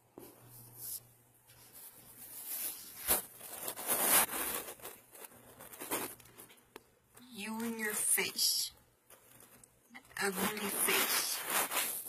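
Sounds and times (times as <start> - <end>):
rustling against microphone: 0.5 - 6.6, 10.2 - 12.0.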